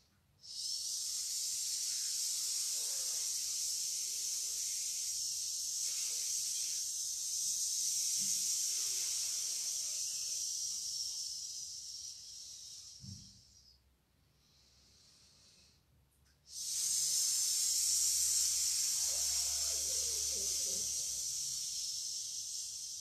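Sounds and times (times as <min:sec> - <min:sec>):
person hissing through teeth: 0:00.4 - 0:13.8, 0:16.5 - 0:23.0.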